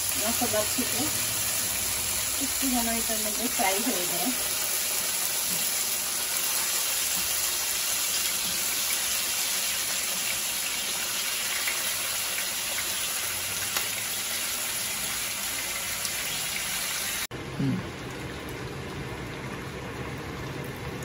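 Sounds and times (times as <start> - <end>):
chicken sizzling in frying pan: 0.0 - 17.3.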